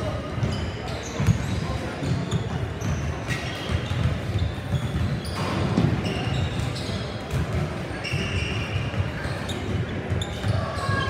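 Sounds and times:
hubbub of voices: 0.0s - 11.0s
sneaker squeaks: 0.0s - 11.0s
basketballs bouncing on hardwood: 7.3s - 11.0s.

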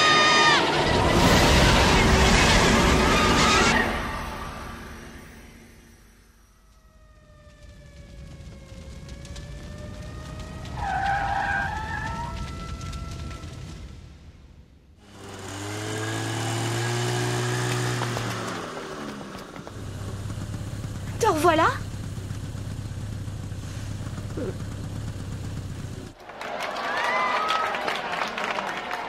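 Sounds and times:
cartoon tyres squealing: 0.0s - 4.7s, 10.4s - 13.8s
engine running steadily: 15.0s - 26.2s.

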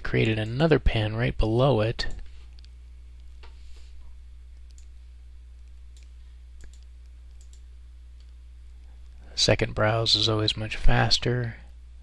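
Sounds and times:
low electrical hum: 0.0s - 12.0s
computer mouse clicks: 5.6s - 7.6s.

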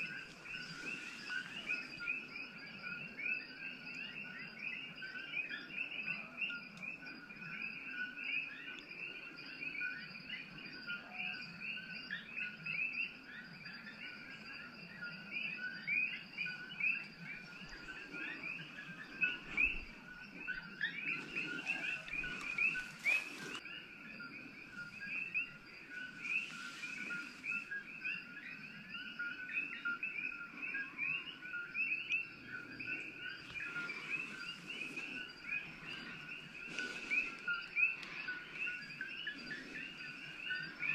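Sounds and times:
leaf rustling: 0.0s - 2.1s, 21.0s - 23.6s, 25.9s - 27.8s, 33.5s - 38.7s
frogs calling in chorus: 0.0s - 40.9s.

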